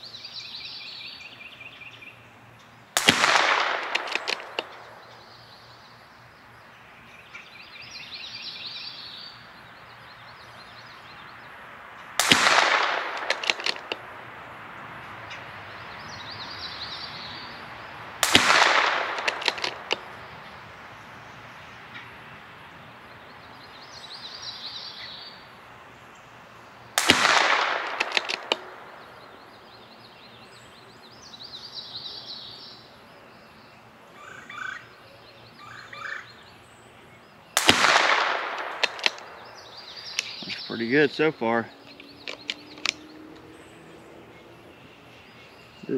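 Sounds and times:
rifle shots with echo: 0:03.0 - 0:05.4, 0:12.2 - 0:14.4, 0:18.2 - 0:20.3, 0:27.0 - 0:29.6, 0:37.6 - 0:40.4.

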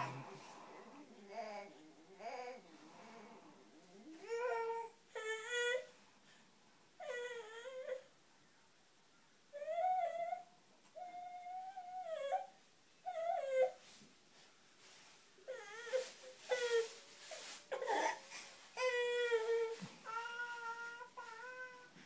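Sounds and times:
baby whimpering and fussing: 0:00.0 - 0:06.0, 0:07.0 - 0:08.1, 0:15.4 - 0:22.0.

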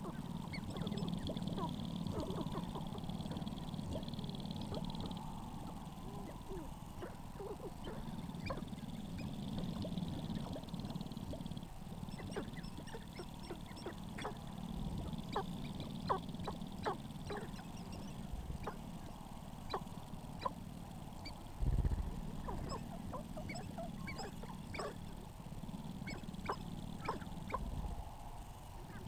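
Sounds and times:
grouse clucking and chirping: 0:00.0 - 0:29.0
low rumble: 0:21.6 - 0:22.7.

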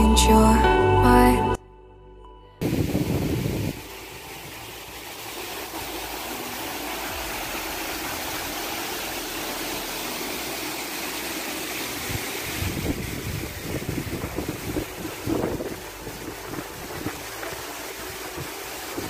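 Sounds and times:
wind buffeting microphone: 0:02.6 - 0:04.5, 0:12.0 - 0:17.4
stream rushing over rocks: 0:02.6 - 0:19.0.

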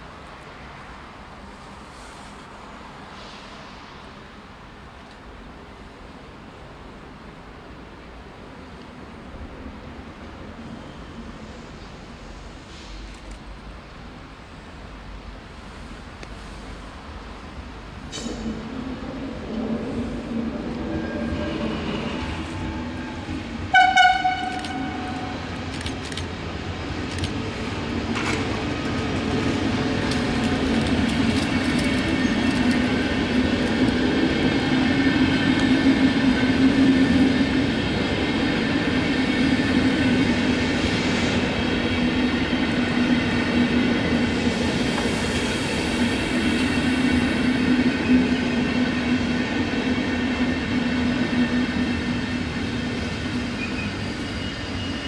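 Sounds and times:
train coaches rumbling and clattering: 0:00.0 - 0:55.0
locomotive horn blast: 0:23.7 - 0:25.5.

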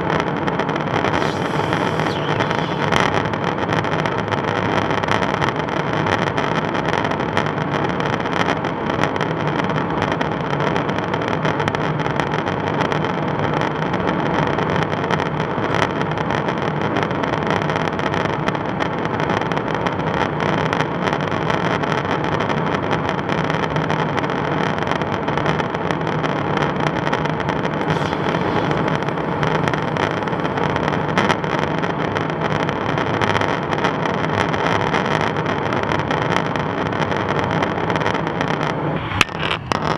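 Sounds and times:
jet engine and airflow drone: 0:00.9 - 0:03.4, 0:27.8 - 0:31.8, 0:38.8 - 0:39.9.

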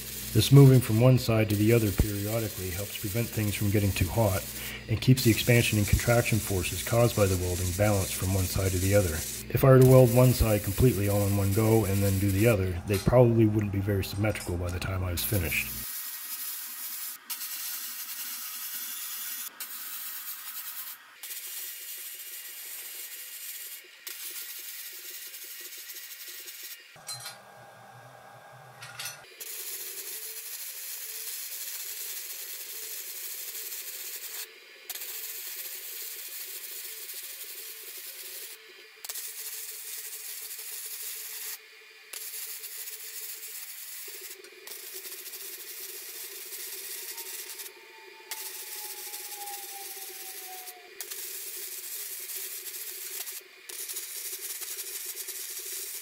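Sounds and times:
welding arc crackling and hissing: 0:00.0 - 0:56.0.

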